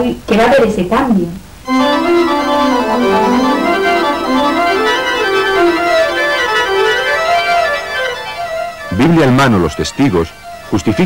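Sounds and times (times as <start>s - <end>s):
background music with sustained chords: 1.7s - 10.8s.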